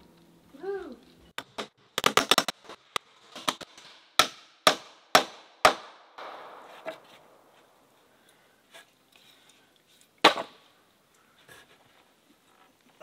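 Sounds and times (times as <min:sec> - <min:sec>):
hammer striking timber: 0:04.2 - 0:07.2.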